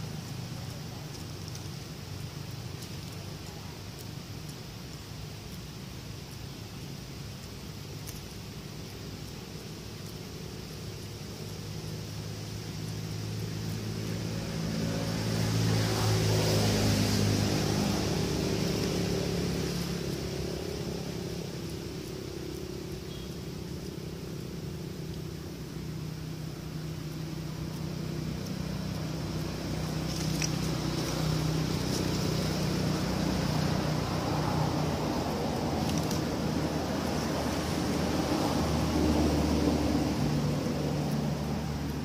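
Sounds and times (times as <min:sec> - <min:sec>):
steady high hiss: 0:00.0 - 0:42.0
vehicle engine passing: 0:11.2 - 0:42.0.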